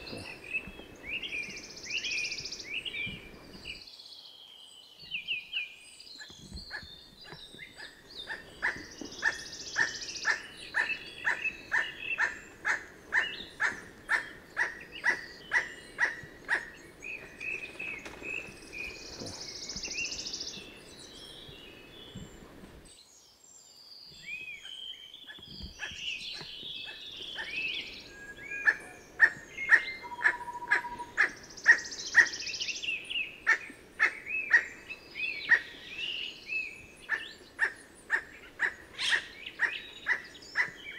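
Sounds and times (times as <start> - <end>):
birds chirping in background: 0.0 - 40.9
toucanet barking call: 7.8 - 16.7, 28.6 - 32.4.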